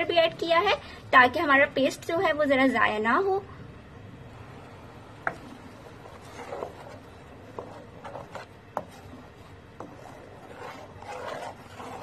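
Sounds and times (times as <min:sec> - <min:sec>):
spatula scraping pan: 0:05.2 - 0:12.0.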